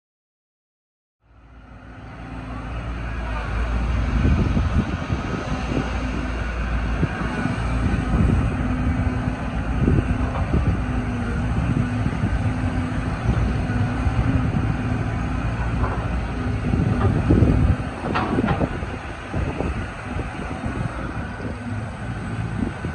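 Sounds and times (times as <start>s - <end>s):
excavator engine and hydraulics humming: 1.2s - 22.9s
machinery knocking: 12.6s - 19.0s.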